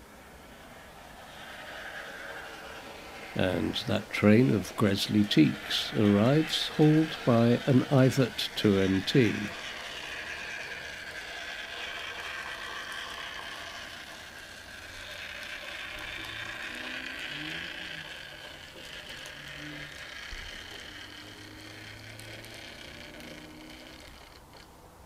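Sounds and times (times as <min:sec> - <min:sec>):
model train motor whirring: 0:00.0 - 0:25.0
wheels rolling on rails: 0:00.0 - 0:25.0.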